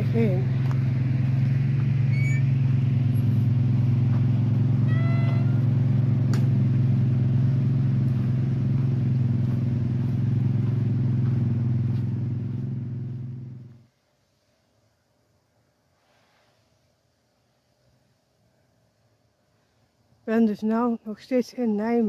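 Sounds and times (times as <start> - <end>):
steady low rumble: 0.0 - 13.8.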